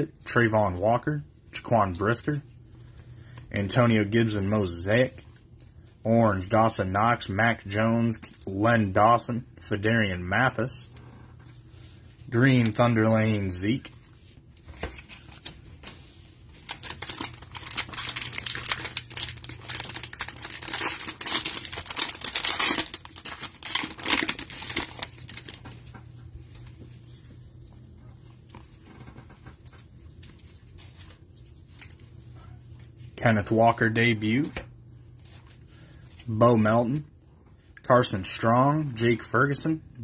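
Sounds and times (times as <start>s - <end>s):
plastic wrapper tearing and crinkling: 15.0s - 25.8s.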